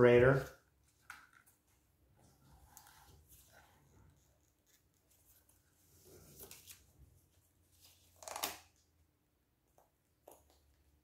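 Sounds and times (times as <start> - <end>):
faint rustling and handling: 0.2 - 8.4.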